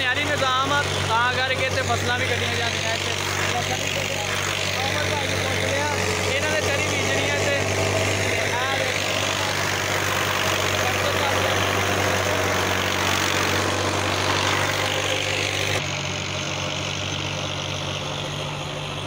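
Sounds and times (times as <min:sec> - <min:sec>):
diesel tractor engine running: 0:00.0 - 0:19.0.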